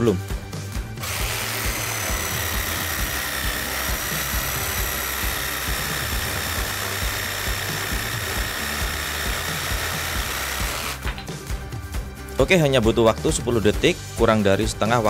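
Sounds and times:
jigsaw cutting wood: 0:01.0 - 0:11.2.

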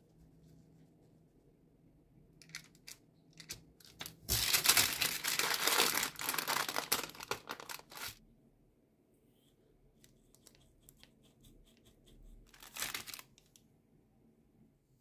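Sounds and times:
wrapping crinkling: 0:02.4 - 0:08.2, 0:12.5 - 0:13.6.

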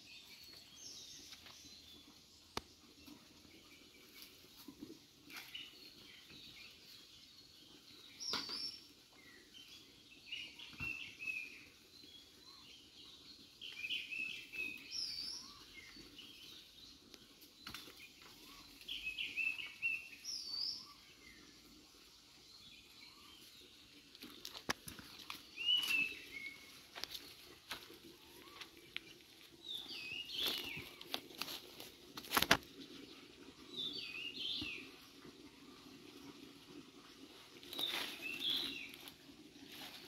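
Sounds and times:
birds chirping: 0:05.3 - 0:40.0
knocks and rustles in leaves: 0:24.2 - 0:28.6, 0:29.6 - 0:32.8, 0:37.6 - 0:40.0.

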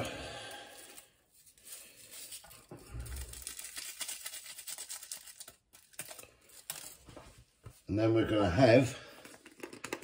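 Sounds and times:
stock cube wrappers crinkling: 0:00.7 - 0:07.0.

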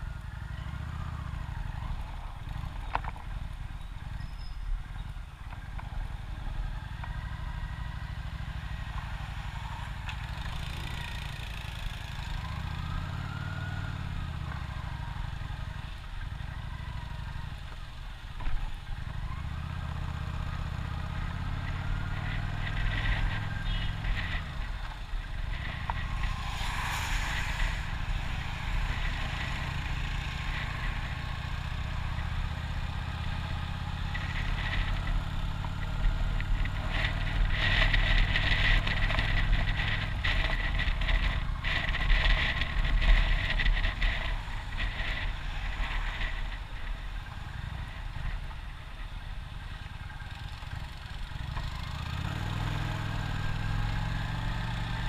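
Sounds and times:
motorcycle engine running: 0:00.0 - 0:55.0
wind rushing over microphone: 0:21.5 - 0:50.1.

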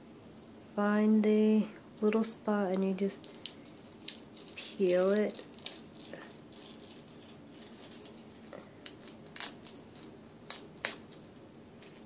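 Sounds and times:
pore strip peeling off skin: 0:03.2 - 0:11.2.

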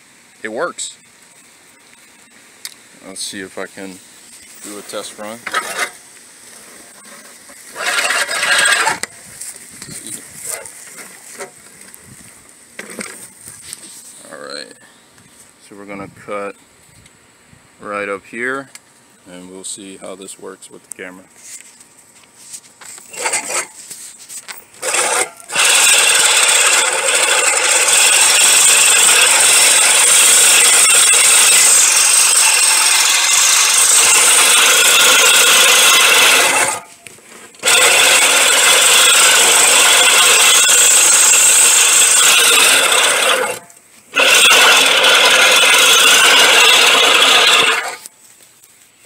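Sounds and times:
reel mower cutting grass: 0:03.0 - 0:14.1, 0:22.8 - 0:48.7.

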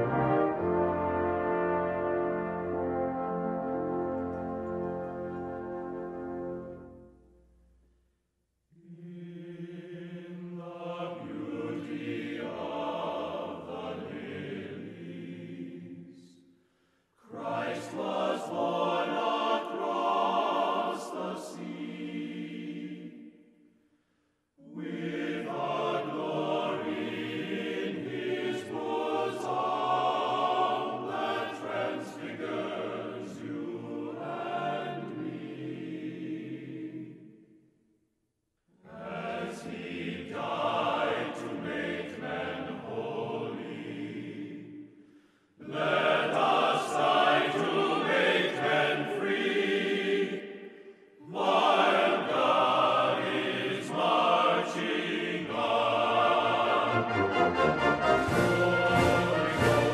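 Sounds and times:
choir singing: 0:00.0 - 0:07.2, 0:08.8 - 0:16.5, 0:17.2 - 0:23.8, 0:24.6 - 0:37.6, 0:38.8 - 0:59.9.

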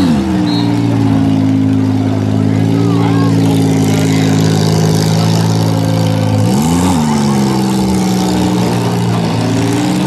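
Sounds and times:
car engines running hard: 0:00.0 - 0:10.0
engine revving: 0:00.0 - 0:10.0.

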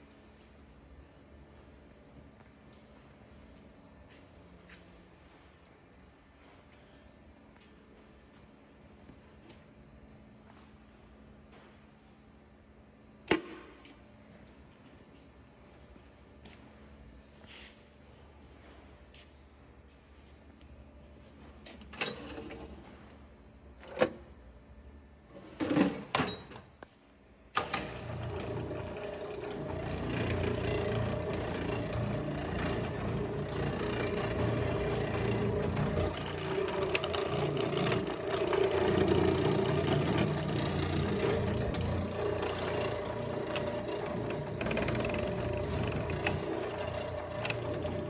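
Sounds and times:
bench lathe motor humming: 0:27.9 - 0:48.0.

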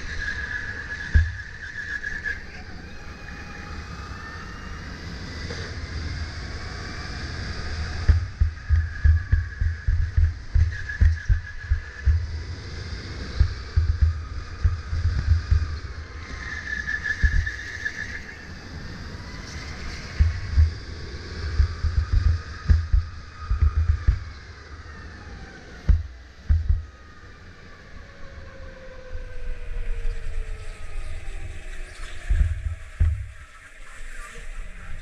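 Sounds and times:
electric kart motor whining: 0:00.0 - 0:35.0
low buffeting and thumps: 0:00.8 - 0:01.7, 0:07.3 - 0:18.2, 0:19.0 - 0:27.2, 0:32.0 - 0:33.9.

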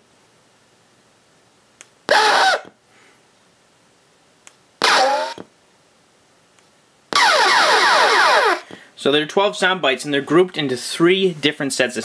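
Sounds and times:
falling whistling tones: 0:07.2 - 0:08.7.

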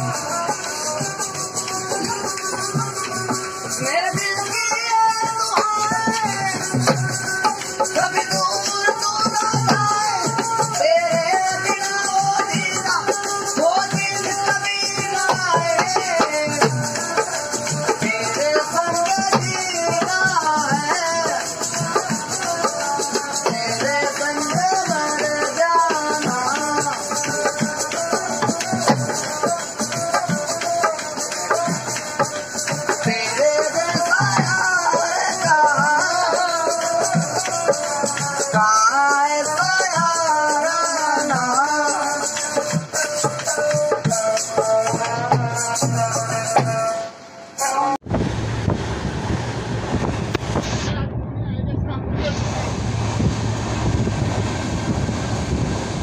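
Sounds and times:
hand drum beating: 0:00.0 - 0:40.4
rhythmic rattling bells: 0:00.0 - 0:47.0
man singing folk song: 0:00.0 - 0:48.0.

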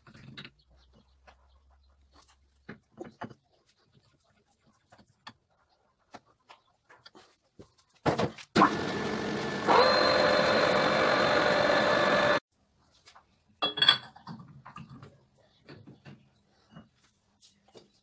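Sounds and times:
metal lathe whining: 0:08.7 - 0:12.4.

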